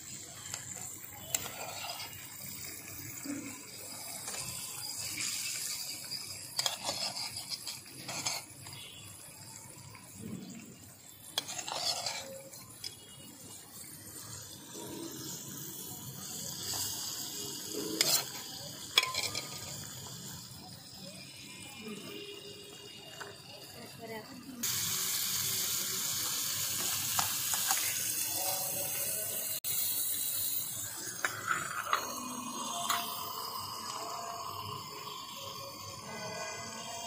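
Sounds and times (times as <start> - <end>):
curry sizzling in a pan: 0.0 - 37.0
metal spoon clinking on pan: 18.0 - 19.8.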